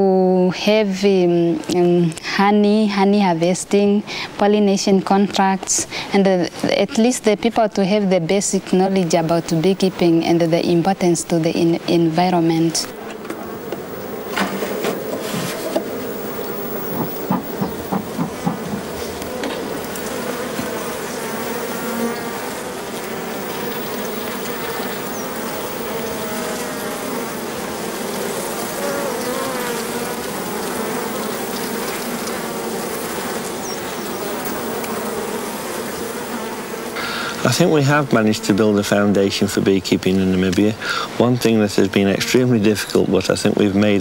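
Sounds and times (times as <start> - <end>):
bees buzzing: 1.0 - 44.0
knocks: 16.9 - 19.6.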